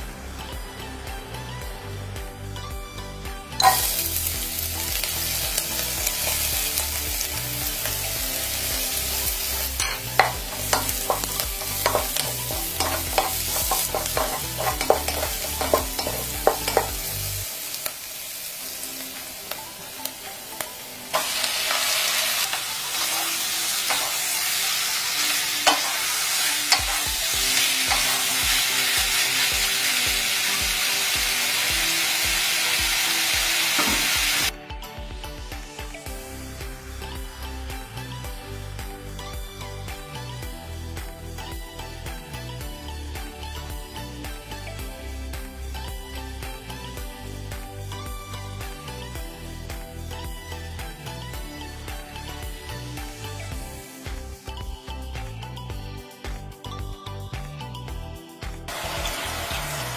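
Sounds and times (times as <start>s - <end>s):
food sizzling in a pan: 3.6s - 34.5s, 50.0s - 54.5s, 58.7s - 59.9s
utensil scraping a pan: 9.8s - 17.0s, 25.6s - 28.5s.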